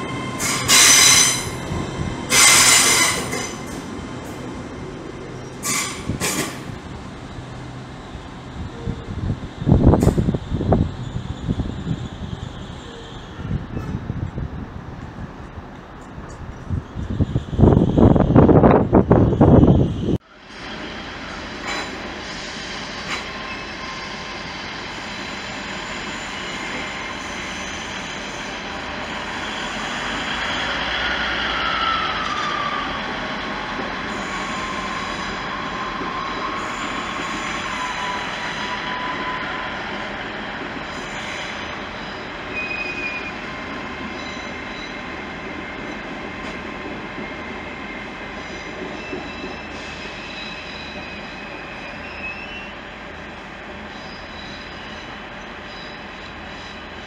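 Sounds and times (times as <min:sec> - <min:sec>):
high wheel squeals: 0:00.0 - 0:03.8, 0:22.5 - 0:43.5, 0:44.1 - 0:45.1, 0:48.3 - 0:52.8, 0:53.8 - 0:57.0
train wheels rumbling on rails: 0:00.0 - 0:57.0.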